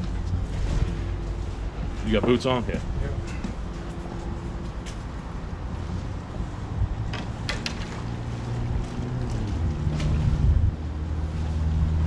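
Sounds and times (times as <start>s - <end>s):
wind buffeting microphone: 5.5s - 12.0s.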